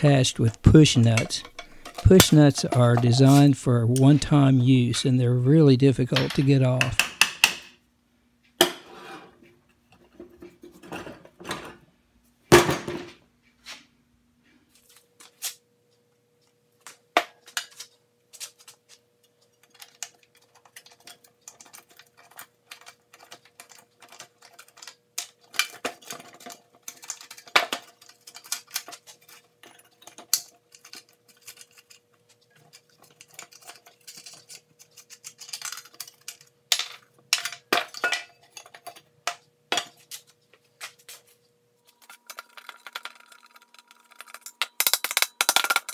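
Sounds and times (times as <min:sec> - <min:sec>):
metal tools clinking and scraping: 0:00.0 - 0:04.9, 0:19.4 - 0:39.1.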